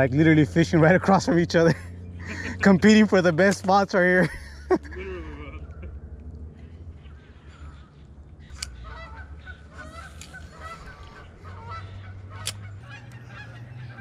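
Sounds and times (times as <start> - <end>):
birds calling: 0.0 - 14.0
sharp clicks: 8.5 - 8.8.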